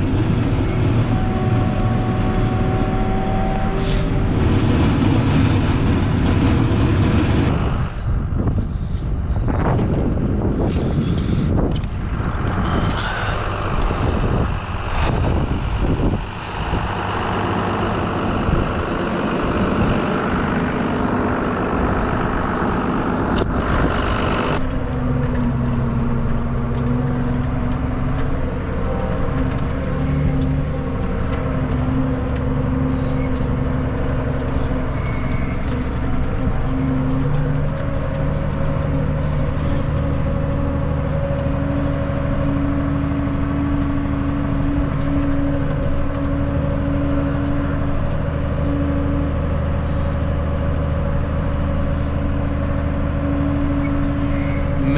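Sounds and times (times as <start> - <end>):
wind noise on microphone: 0.0 - 20.7, 23.2 - 24.8
tractor engine droning: 0.0 - 54.9.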